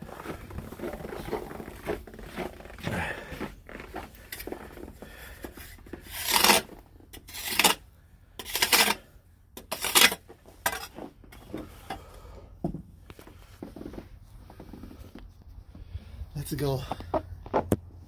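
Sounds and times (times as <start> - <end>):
snow shovel scraping snow: 0.0 - 5.0.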